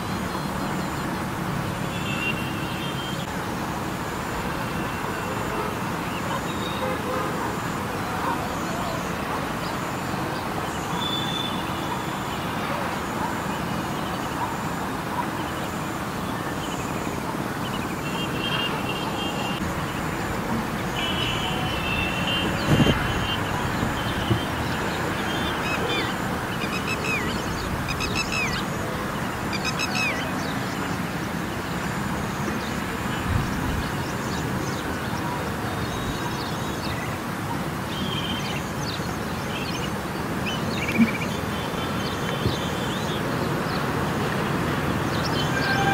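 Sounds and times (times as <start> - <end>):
road traffic noise: 0.0 - 45.9
bird calls: 21.0 - 28.8, 29.5 - 30.8, 39.6 - 43.2.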